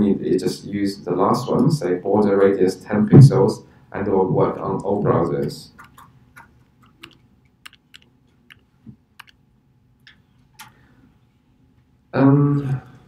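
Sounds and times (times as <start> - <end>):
keyboard and mouse clicks: 5.8 - 9.4, 10.0 - 10.8.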